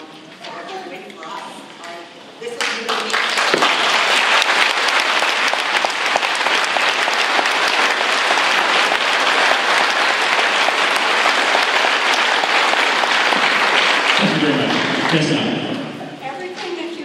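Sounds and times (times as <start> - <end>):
audience applauding: 2.6 - 16.0.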